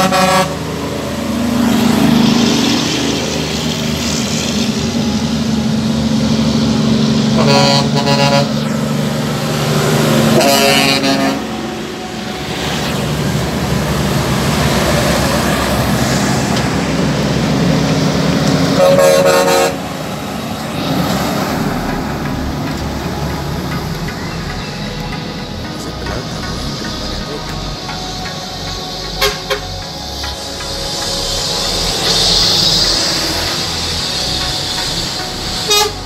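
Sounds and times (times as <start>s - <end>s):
truck horn blasts: 0.0s - 0.8s, 4.9s - 15.9s, 18.6s - 20.1s, 29.2s - 29.8s, 31.7s - 36.0s
diesel trucks driving past: 0.0s - 36.0s.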